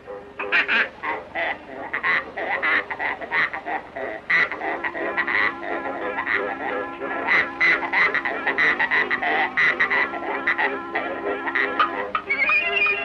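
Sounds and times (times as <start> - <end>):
cartoon pig squealing and grunting: 0.6 - 5.6, 7.3 - 10.8, 11.5 - 13.0.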